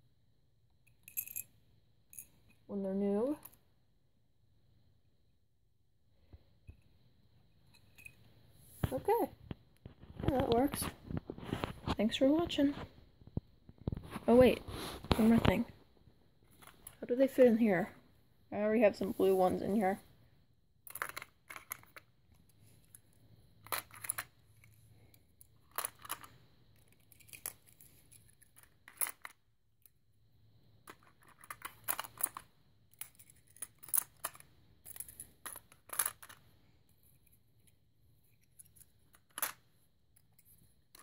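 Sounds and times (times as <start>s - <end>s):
plastic toys clicking and knocking: 20.8s - 30.0s, 30.8s - 41.0s.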